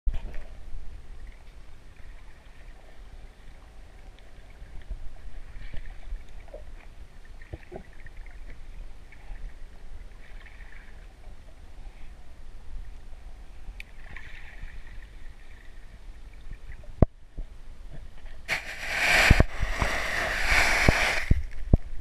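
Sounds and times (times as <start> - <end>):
water hiss: 18.5 - 21.6.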